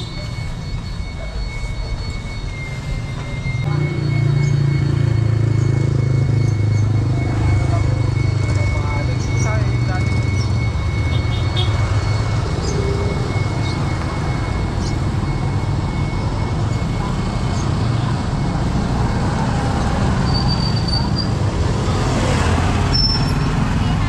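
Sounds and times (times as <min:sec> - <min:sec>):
motorcycles passing close by: 0:16.8 - 0:24.0.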